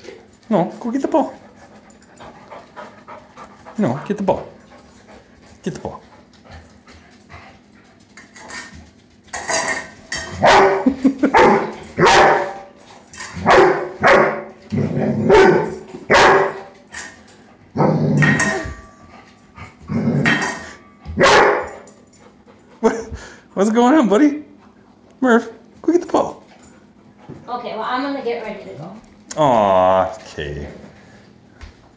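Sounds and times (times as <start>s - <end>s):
dog barking: 10.4s - 12.6s, 13.4s - 14.5s, 15.2s - 16.7s, 21.2s - 21.8s.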